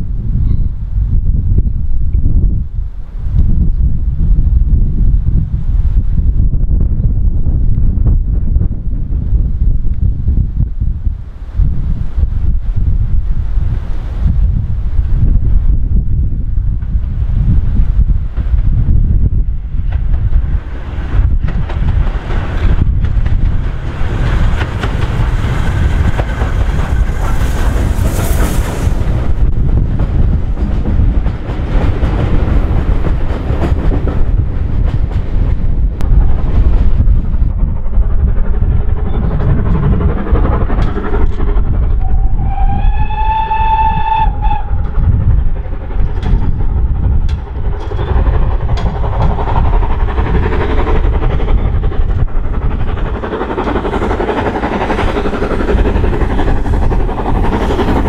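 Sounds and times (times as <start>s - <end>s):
steam locomotive rumble: 0.0s - 58.0s
wind on microphone: 0.0s - 58.0s
steam whistle blast: 42.0s - 44.8s.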